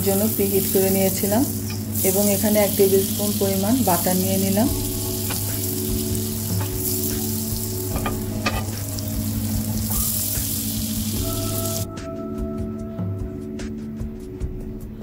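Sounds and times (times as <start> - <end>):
butter sizzling in a pan: 0.0 - 11.9.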